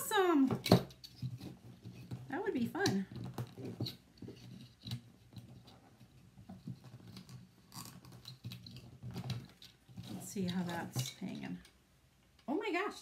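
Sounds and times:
wire clicks and scrapes: 0:00.9 - 0:11.7.

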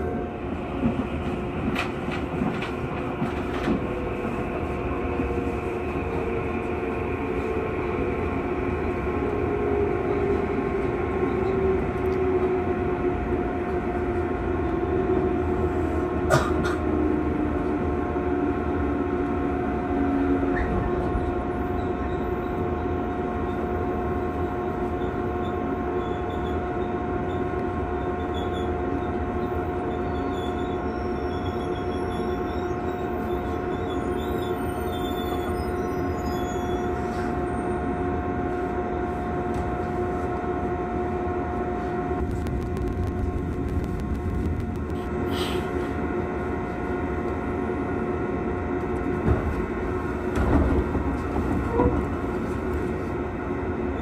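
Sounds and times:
train running rumble and hum: 0:00.0 - 0:54.0
train motor whine: 0:41.2 - 0:45.9.

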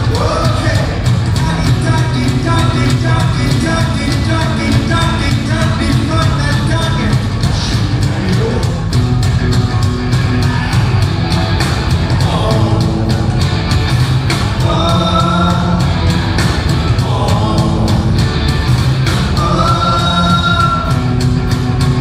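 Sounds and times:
man singing: 0:00.0 - 0:08.9, 0:12.1 - 0:13.4, 0:14.6 - 0:18.3, 0:19.3 - 0:21.1
drums playing fast beat: 0:00.0 - 0:22.0
electric guitars: 0:00.0 - 0:22.0.

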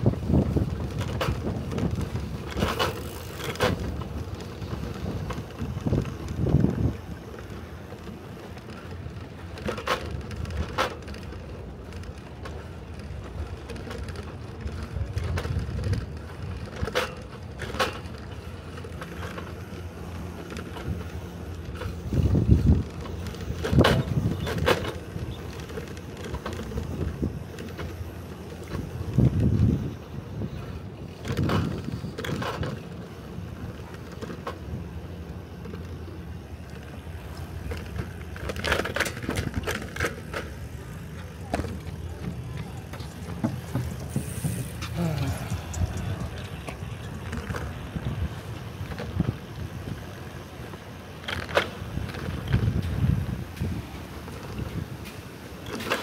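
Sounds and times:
wind on microphone: 0:00.0 - 0:07.4, 0:20.2 - 0:33.8, 0:37.0 - 0:50.5, 0:51.8 - 0:55.2
low bumps: 0:00.0 - 0:50.2
bicycle tyre rumble: 0:00.0 - 0:56.0
sharp clicks and rattles: 0:35.6 - 0:50.2.

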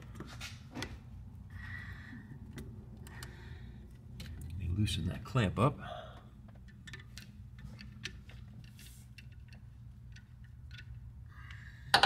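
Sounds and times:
low steady hum: 0:00.0 - 0:12.0
metallic clicks of hose clamp: 0:06.4 - 0:12.0.

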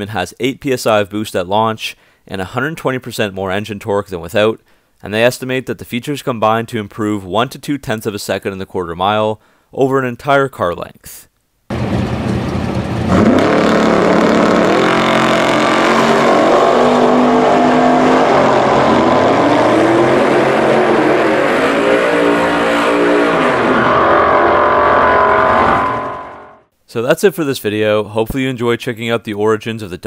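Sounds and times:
drag cars accelerating at full throttle: 0:11.7 - 0:26.7.

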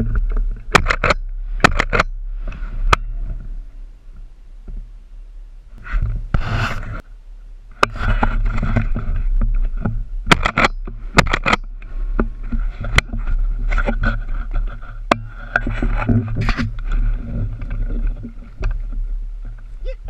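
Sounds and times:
camera rubbing against clothing: 0:05.8 - 0:07.0, 0:07.8 - 0:19.8.

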